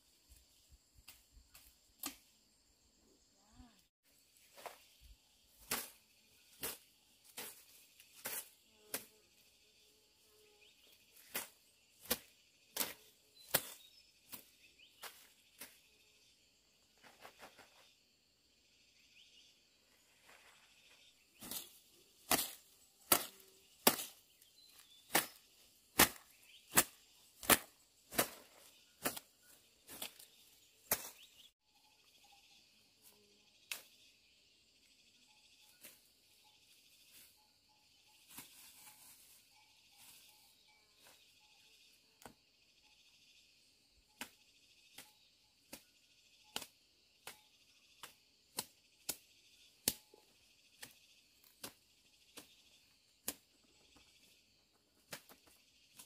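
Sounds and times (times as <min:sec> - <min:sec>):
machete chopping brush: 0:05.6 - 0:09.2, 0:11.1 - 0:15.8, 0:21.4 - 0:31.5.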